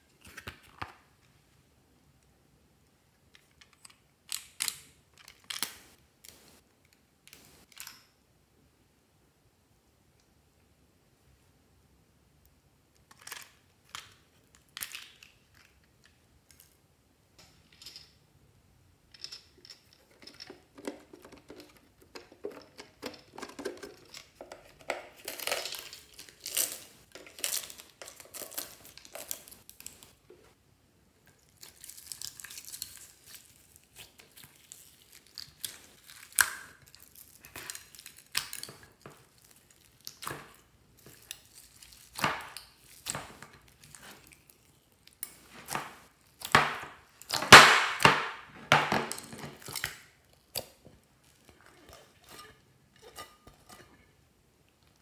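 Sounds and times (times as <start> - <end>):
crinkling and rustling: 19.1 - 30.6, 31.3 - 55.0.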